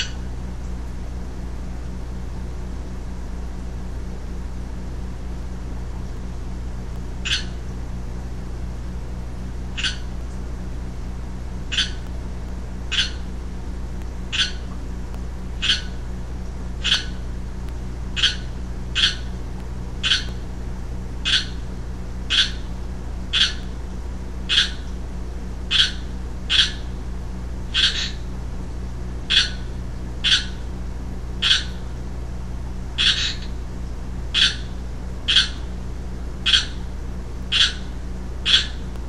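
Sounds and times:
frog calling: 0:00.0 - 0:00.3, 0:07.2 - 0:07.6, 0:09.7 - 0:10.2, 0:11.7 - 0:12.1, 0:12.9 - 0:13.3, 0:14.3 - 0:14.8, 0:15.6 - 0:16.1, 0:16.8 - 0:17.2, 0:18.1 - 0:19.4, 0:20.0 - 0:20.4, 0:21.2 - 0:21.7, 0:22.3 - 0:23.8, 0:24.5 - 0:25.0, 0:25.7 - 0:27.0, 0:27.7 - 0:28.3, 0:29.3 - 0:30.7, 0:31.4 - 0:32.0, 0:33.0 - 0:33.6, 0:34.3 - 0:35.8, 0:36.4 - 0:36.9, 0:37.5 - 0:38.9
steady low hum: 0:00.0 - 0:39.0.

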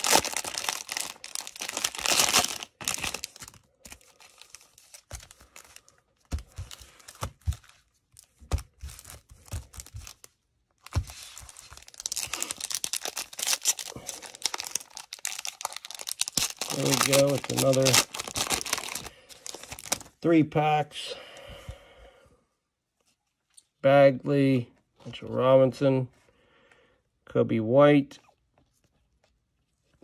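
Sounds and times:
cellophane wrapper crinkling and tearing: 0:00.0 - 0:20.2
cards tapping and shuffling: 0:04.8 - 0:12.5.

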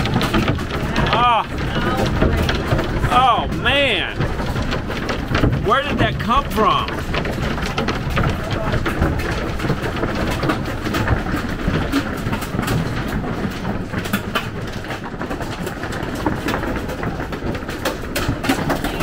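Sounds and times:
hail clattering on roof: 0:00.0 - 0:19.0.

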